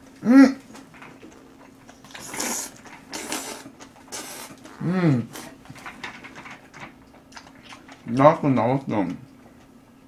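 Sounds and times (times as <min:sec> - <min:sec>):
person humming: 0:00.2 - 0:00.6, 0:04.8 - 0:05.5
noodle slurping: 0:01.2 - 0:05.6.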